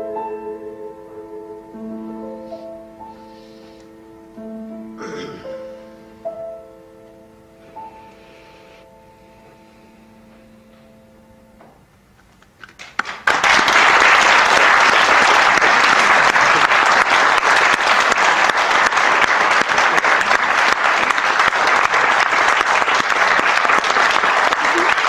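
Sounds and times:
crowd applause: 0:12.7 - 0:25.0.

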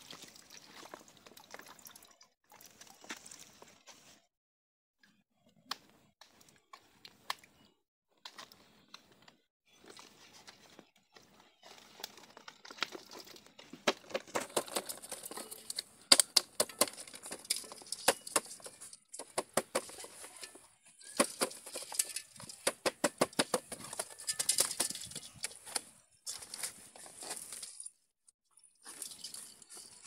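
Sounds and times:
fish trap rattling in metal pot: 0:14.3 - 0:19.4, 0:21.0 - 0:25.6, 0:28.8 - 0:30.0.

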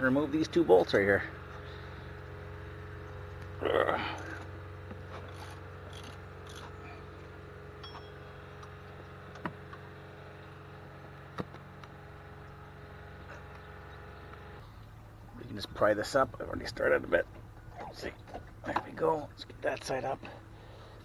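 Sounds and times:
steady low hum: 0:00.0 - 0:21.0
sharp metal clinks: 0:07.8 - 0:08.4.

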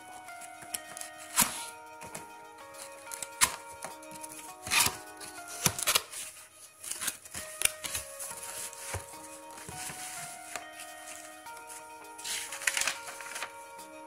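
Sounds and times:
soft background music: 0:00.0 - 0:14.0
plastic bag rustling: 0:05.2 - 0:13.6.

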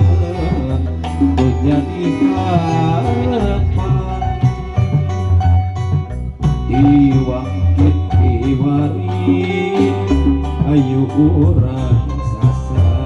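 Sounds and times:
electronic keyboard melody: 0:00.0 - 0:13.0
hand drums steady rhythm: 0:00.0 - 0:13.0
violin melody: 0:00.0 - 0:13.0.

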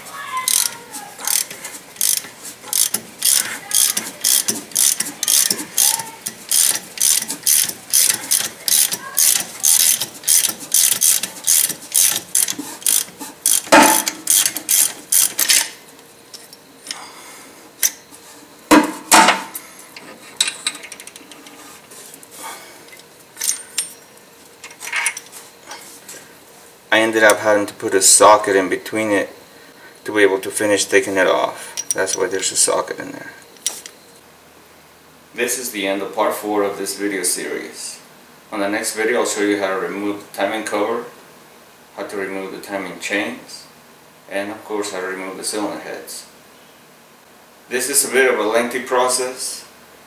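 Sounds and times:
ratchet wrench clicking: 0:00.5 - 0:15.7.

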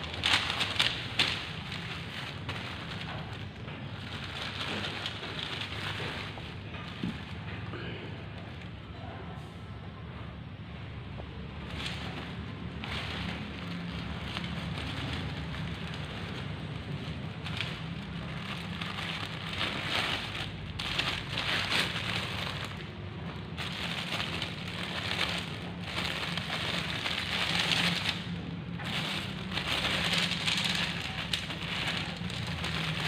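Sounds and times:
tent fabric rustling: 0:00.0 - 0:07.4.

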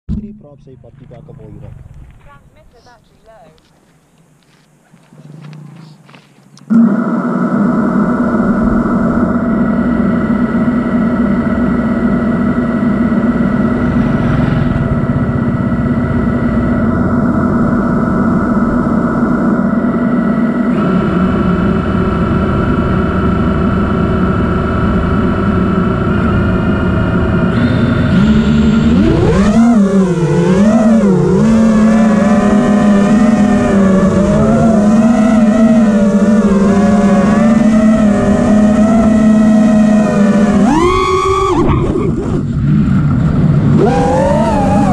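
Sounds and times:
drone motors whining: 0:00.1 - 0:44.9.

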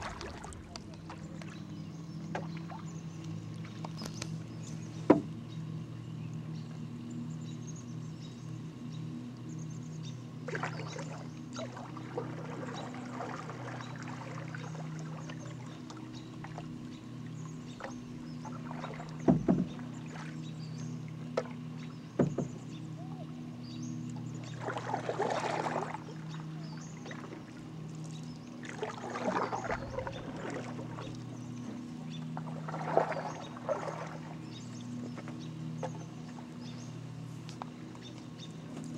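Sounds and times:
paddle splashing through water: 0:00.0 - 0:01.7, 0:10.4 - 0:16.8, 0:17.8 - 0:20.4, 0:24.1 - 0:36.5
steady low hum: 0:00.0 - 0:38.9
paddle knocking canoe hull: 0:05.0 - 0:05.4, 0:17.8 - 0:20.4, 0:21.3 - 0:23.2.

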